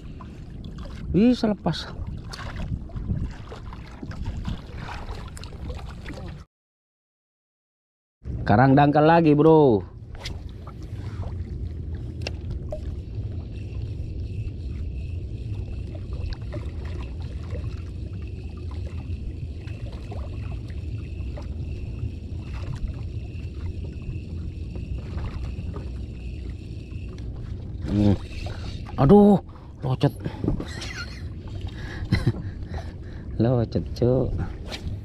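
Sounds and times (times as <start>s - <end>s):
wind rumbling on microphone: 0.0s - 6.4s
water lapping against kayak hull: 0.0s - 6.5s, 10.0s - 35.0s
faint high whine: 9.6s - 31.6s.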